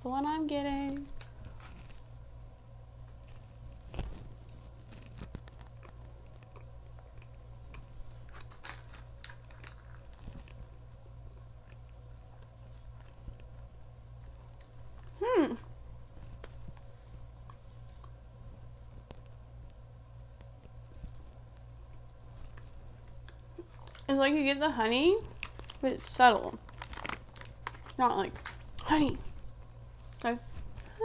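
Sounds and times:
person chewing crunchy food: 3.1 - 15.2, 16.3 - 19.4, 20.9 - 24.1, 25.2 - 25.9, 26.6 - 28.8
person humming mmm: 15.2 - 15.7.

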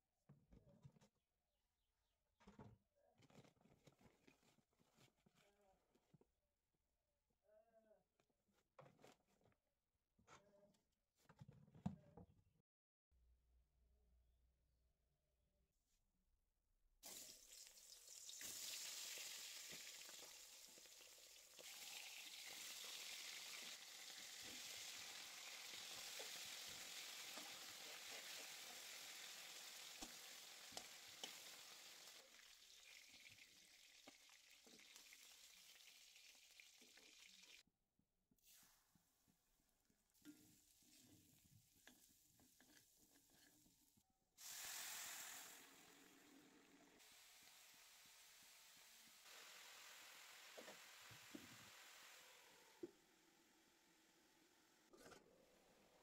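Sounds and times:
food sizzling in hot oil: 17.0 - 37.6, 44.4 - 52.8.

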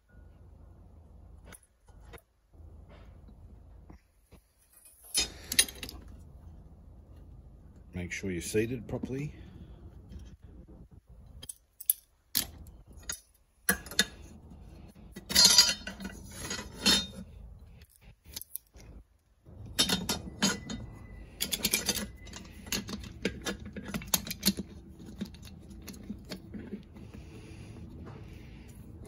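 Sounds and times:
metallic clinks and clatter: 11.3 - 18.9, 19.5 - 29.0
small metal clicks: 11.3 - 26.8.

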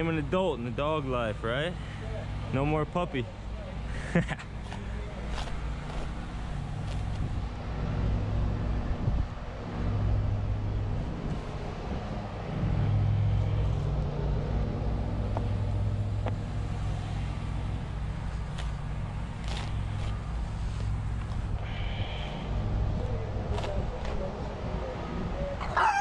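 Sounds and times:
diesel engine running: 0.0 - 25.6
shovel digging in soil: 4.6 - 6.2, 6.8 - 7.3, 18.4 - 21.4.

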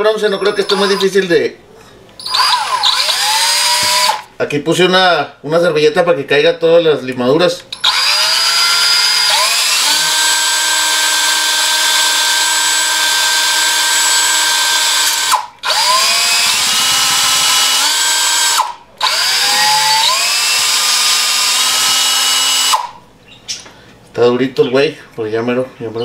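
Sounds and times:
cordless drill whining: 0.1 - 1.2, 2.2 - 4.3, 7.8 - 23.0.

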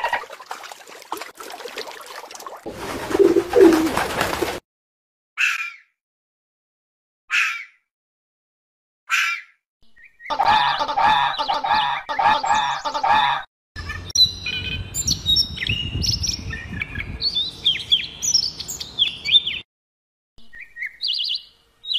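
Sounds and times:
rapid bird calls: 3.1 - 4.5
robin singing: 13.8 - 19.6, 20.4 - 21.9.

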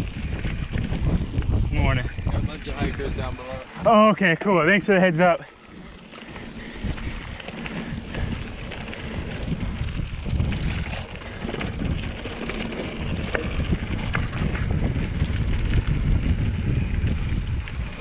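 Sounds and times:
wind rumble on microphone: 0.0 - 4.1, 5.6 - 18.0
bike clicks and rattles: 0.0 - 18.0
bike tyres crunching on dirt: 0.0 - 18.0.

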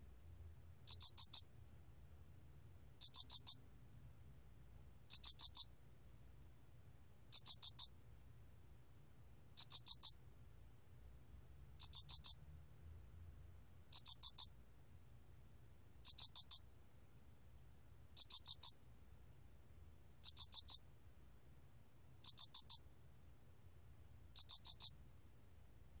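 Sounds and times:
cricket chirping: 0.9 - 1.5, 3.0 - 3.6, 5.1 - 5.8, 7.3 - 8.0, 9.6 - 10.2, 11.8 - 12.4, 13.9 - 14.6, 16.0 - 16.7, 18.2 - 18.8, 20.2 - 20.9, 22.2 - 22.9, 24.3 - 25.0.

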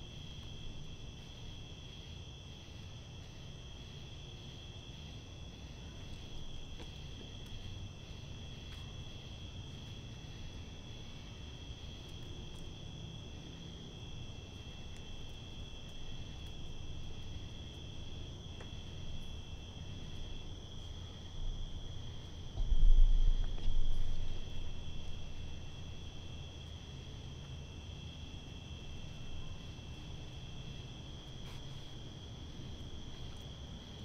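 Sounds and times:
insects trilling: 0.0 - 34.0
faint ticks: 18.6 - 19.4
low rumble: 21.6 - 26.3.

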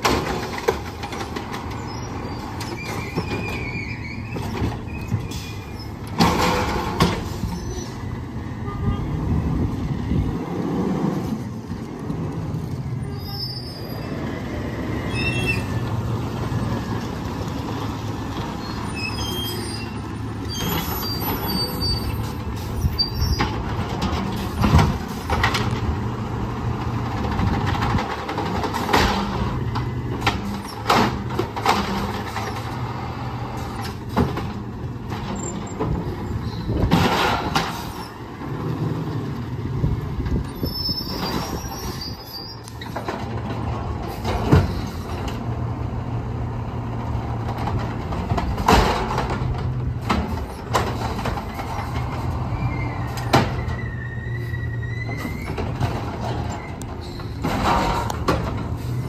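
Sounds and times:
garbage truck engine hum: 0.0 - 59.0
trash carts clanking and banging: 0.0 - 59.0.

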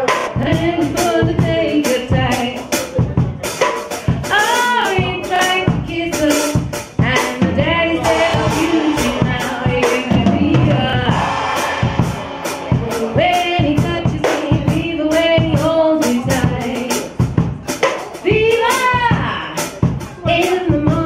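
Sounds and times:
band music: 0.0 - 21.0
drum kit beat: 0.0 - 21.0
woman singing into microphone: 0.1 - 2.7, 4.2 - 17.2, 18.2 - 21.0.

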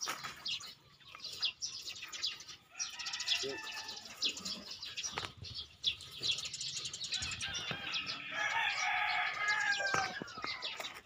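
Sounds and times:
small birds chirping: 0.0 - 11.0
rooster crowing: 2.7 - 4.1, 7.2 - 10.2.

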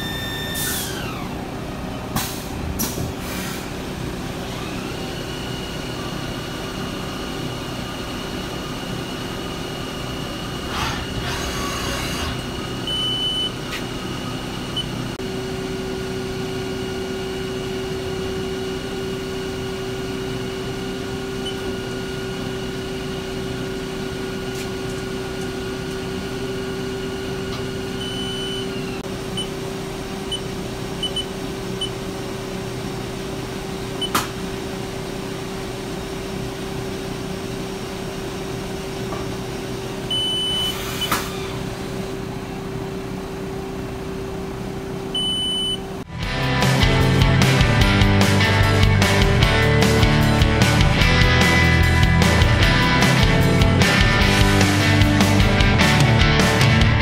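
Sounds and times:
lathe motors and pumps humming: 0.0 - 46.1
short electronic beeps: 12.9 - 13.6, 28.0 - 28.7, 31.0 - 31.9, 40.1 - 41.1, 45.2 - 45.8.

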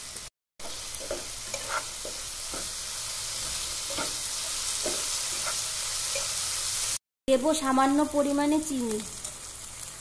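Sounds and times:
masala sizzling in oil: 0.0 - 10.0
spatula scraping pan: 0.6 - 2.8, 3.4 - 6.4.

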